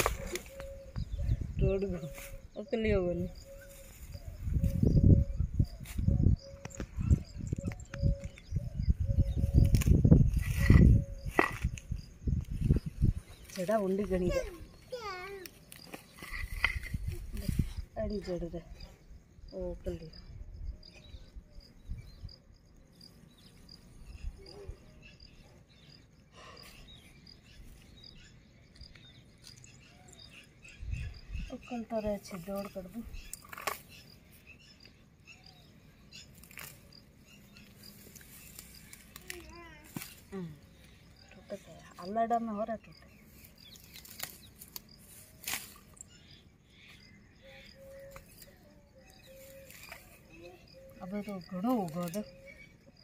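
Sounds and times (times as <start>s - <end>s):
weed stems rustling and snapping: 0.0s - 1.0s, 9.6s - 12.8s, 15.4s - 17.6s, 32.3s - 35.0s, 36.2s - 40.9s, 43.3s - 46.2s, 47.9s - 50.3s
crickets chirping: 0.0s - 53.0s.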